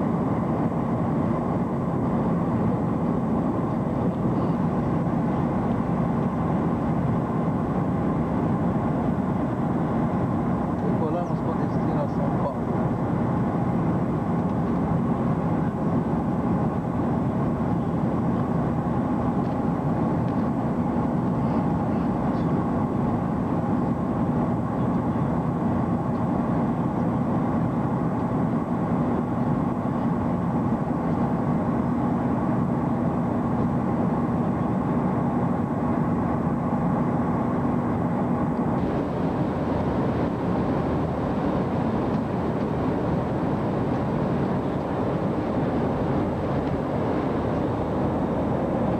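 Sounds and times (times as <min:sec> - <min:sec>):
jet engines droning: 0:00.0 - 0:48.9
steady hum: 0:00.0 - 0:48.9
rushing air: 0:38.7 - 0:48.9.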